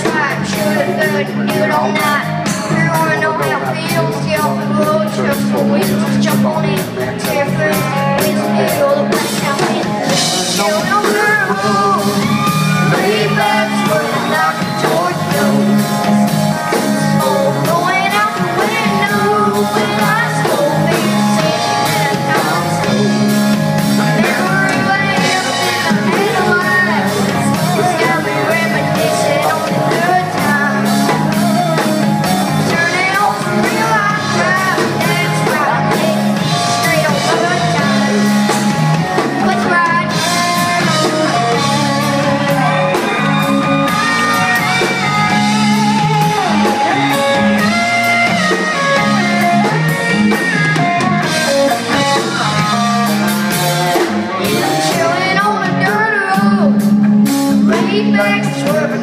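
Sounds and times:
live country band playing: 0.0 - 59.0
person singing: 0.0 - 59.0
people shouting: 12.0 - 14.7.

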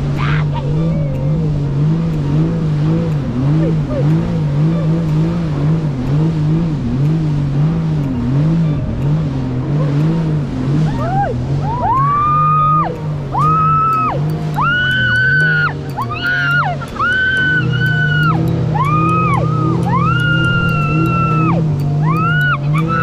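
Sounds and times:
high swooping tones: 0.0 - 23.0
jet ski engine running: 0.0 - 23.0.

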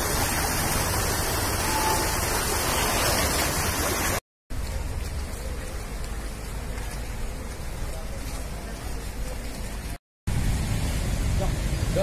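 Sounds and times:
rushing outdoor hiss: 9.6 - 12.0.

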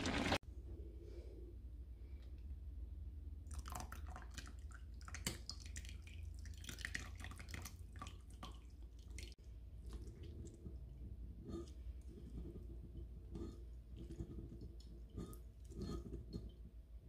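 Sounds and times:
liquid splashing and dripping: 3.5 - 10.6.

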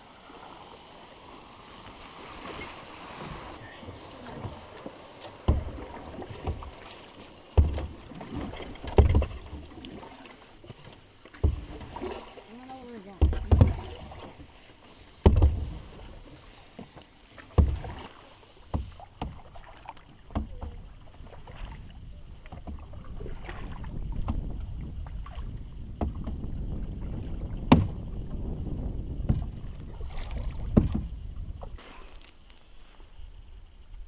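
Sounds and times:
water swishing: 0.0 - 33.8
low steady rumble: 0.0 - 34.0
paddle knocking canoe side: 1.8 - 24.5, 25.2 - 28.1, 29.2 - 32.0.

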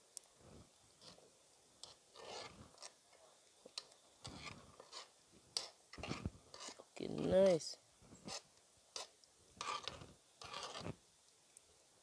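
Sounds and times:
metal spoon scraping a pot: 1.8 - 3.0, 4.2 - 7.3, 8.2 - 11.0.

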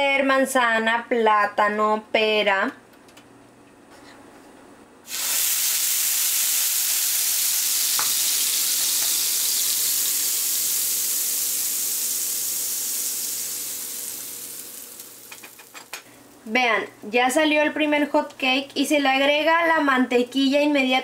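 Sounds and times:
batter sizzling on a griddle: 5.1 - 16.1.

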